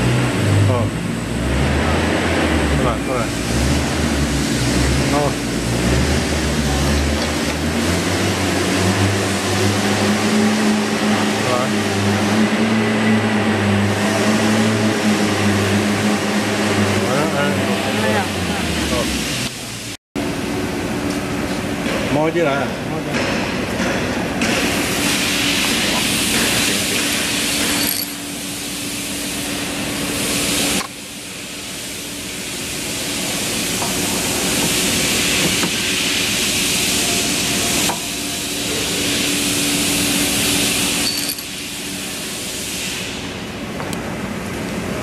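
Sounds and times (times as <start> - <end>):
machine hum: 24.7 - 45.0.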